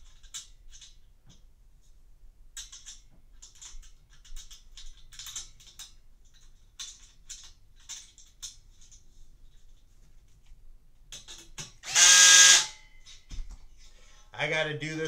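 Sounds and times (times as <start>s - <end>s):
bolts and nuts clinking: 0.0s - 1.5s, 2.5s - 9.9s, 11.1s - 13.4s.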